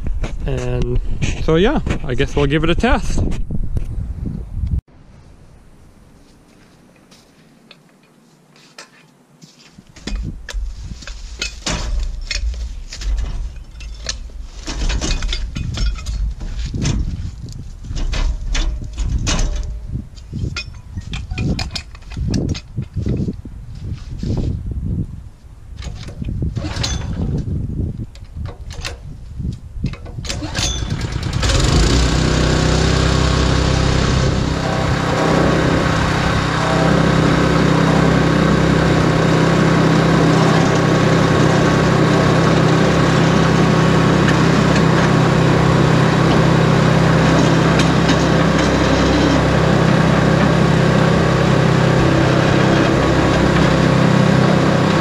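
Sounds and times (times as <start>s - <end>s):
small gas engine pull-started: 25.8s - 27.3s, 30.2s - 55.0s.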